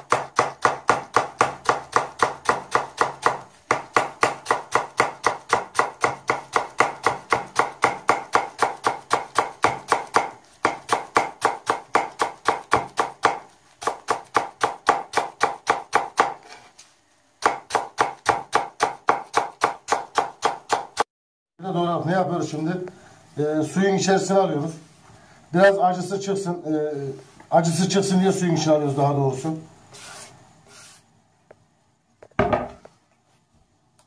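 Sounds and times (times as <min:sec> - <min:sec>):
knife slicing on cutting board: 0:29.9 - 0:31.0.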